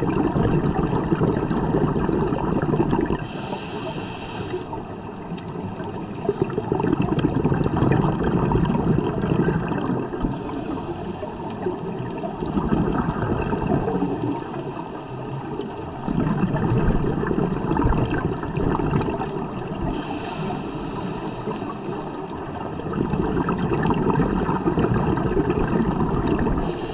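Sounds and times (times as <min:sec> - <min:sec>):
regulator exhalation bubbling: 0:00.0 - 0:04.8, 0:06.1 - 0:26.9
regulator inhalation hiss: 0:03.2 - 0:04.8, 0:10.3 - 0:11.7, 0:13.9 - 0:15.7, 0:19.9 - 0:22.7, 0:26.6 - 0:26.9.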